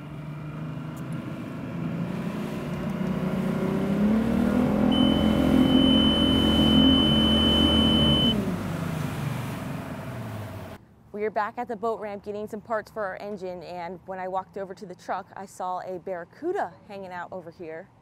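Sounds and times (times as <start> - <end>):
engine revving: 0.0 - 10.8
high whine: 4.5 - 8.5.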